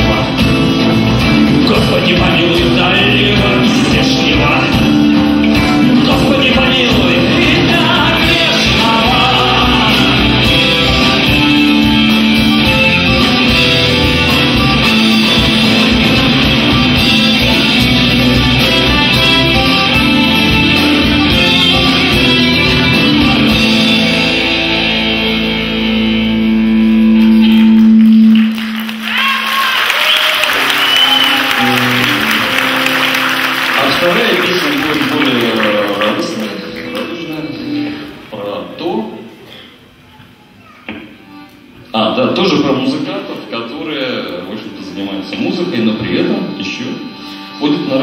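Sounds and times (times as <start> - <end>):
live band playing: 0.0 - 38.4, 39.8 - 48.0
audience applause: 27.2 - 37.9.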